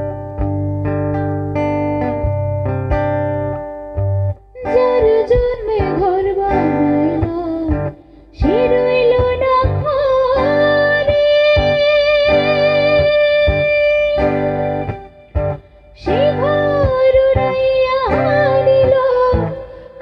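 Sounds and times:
acoustic guitar chords: 0:00.0 - 0:20.0
woman singing: 0:04.6 - 0:15.2, 0:16.0 - 0:20.0.

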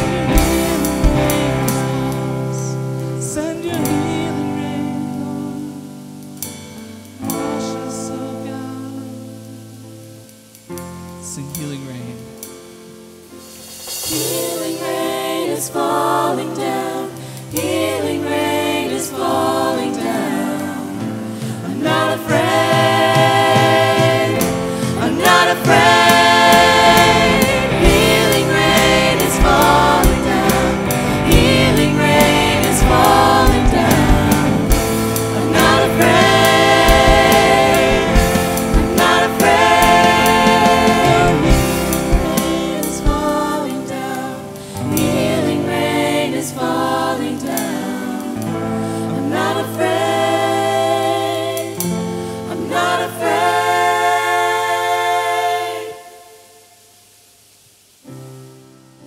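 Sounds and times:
band playing: 0:00.0 - 0:05.2, 0:13.3 - 0:16.7, 0:19.3 - 0:47.2
people singing worship song: 0:00.0 - 0:10.3, 0:13.3 - 0:57.6
drums: 0:00.0 - 0:55.5.

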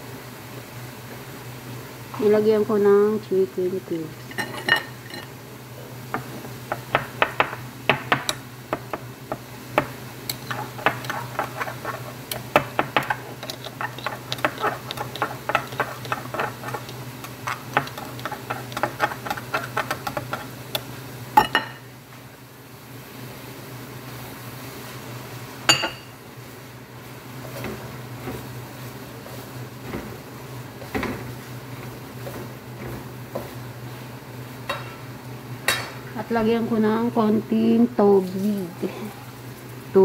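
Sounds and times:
steady low hum: 0:00.0 - 0:40.0
metal spatula scraping a wok: 0:10.4 - 0:12.3.

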